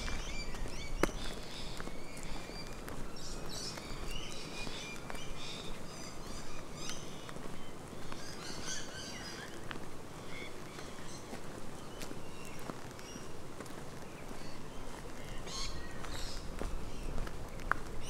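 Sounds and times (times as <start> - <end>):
birds chirping and trilling: 0.0 - 9.6, 10.2 - 13.3
footsteps on dirt track: 0.0 - 18.0.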